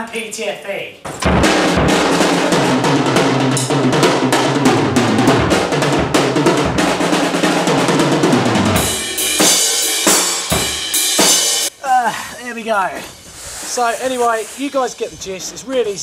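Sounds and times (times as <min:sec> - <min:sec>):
drum kit playing: 0:01.1 - 0:11.8.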